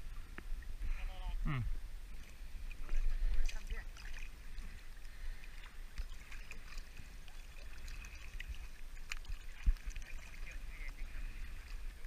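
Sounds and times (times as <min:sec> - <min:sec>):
water sloshing and splashing: 0:02.0 - 0:12.0
water drips: 0:02.1 - 0:11.0.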